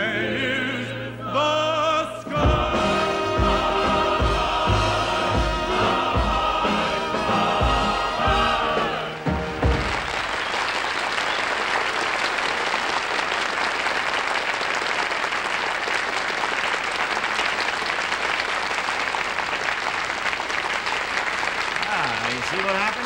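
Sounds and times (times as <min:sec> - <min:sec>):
audience applauding: 0:08.3 - 0:23.0.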